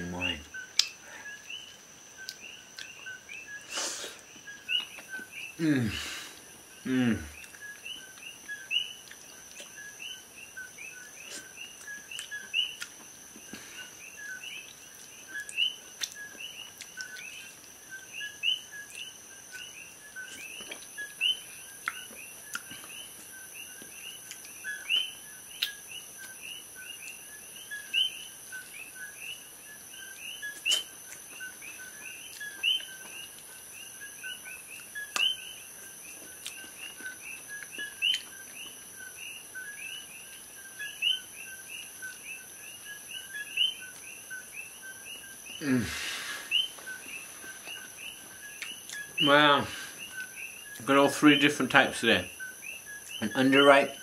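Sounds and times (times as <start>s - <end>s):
frogs chirping: 0.0s - 54.0s
high insect hum: 0.0s - 54.0s.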